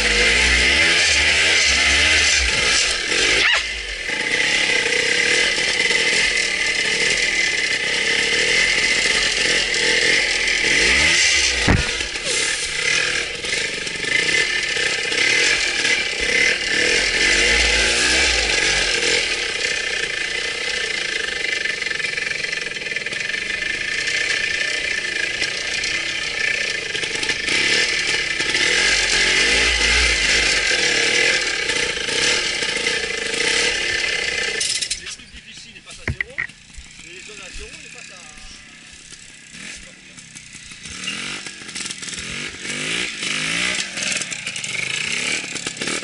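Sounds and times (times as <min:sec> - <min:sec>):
motorcycle engine revving: 0:00.0 - 0:46.0
sharp knock: 0:11.6 - 0:12.1, 0:36.0 - 0:36.5.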